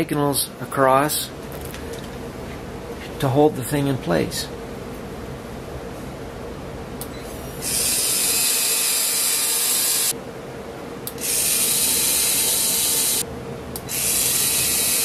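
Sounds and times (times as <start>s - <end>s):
high-pitched pen motor whirring: 7.6s - 10.2s, 11.2s - 13.2s, 13.9s - 15.0s.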